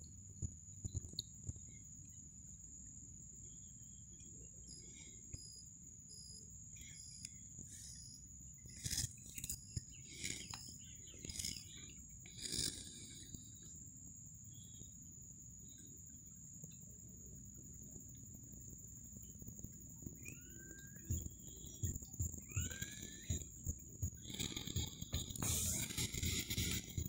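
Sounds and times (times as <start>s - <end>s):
insects droning: 0.0s - 27.0s
bird chirping: 3.4s - 13.8s, 20.0s - 27.0s.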